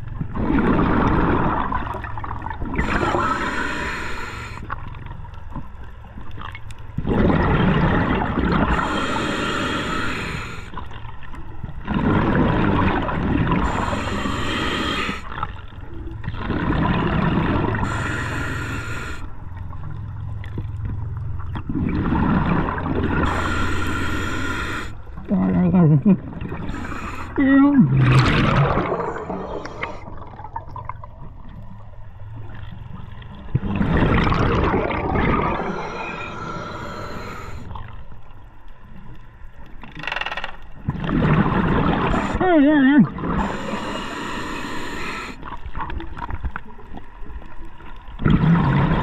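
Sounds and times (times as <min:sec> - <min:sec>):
bubbles: 0:00.0 - 0:03.4, 0:06.4 - 0:09.2, 0:11.7 - 0:14.1, 0:16.2 - 0:18.4, 0:21.4 - 0:23.6, 0:25.2 - 0:37.0, 0:40.8 - 0:43.6, 0:48.1 - 0:49.0
diver breathing through regulator: 0:02.8 - 0:04.8, 0:08.6 - 0:10.8, 0:13.6 - 0:15.4, 0:17.7 - 0:19.4, 0:23.1 - 0:25.3, 0:26.6 - 0:30.3, 0:35.2 - 0:37.8, 0:42.0 - 0:42.4, 0:43.3 - 0:45.5
regulator high hiss: 0:08.7 - 0:10.7, 0:13.7 - 0:15.3, 0:17.9 - 0:19.3, 0:23.2 - 0:25.0.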